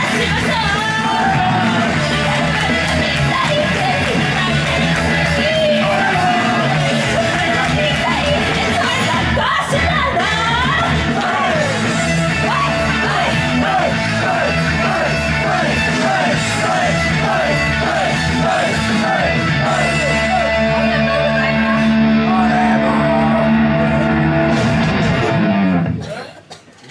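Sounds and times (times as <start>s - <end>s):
woman singing and shouting: 0.0s - 11.7s
loud rock music: 0.0s - 26.1s.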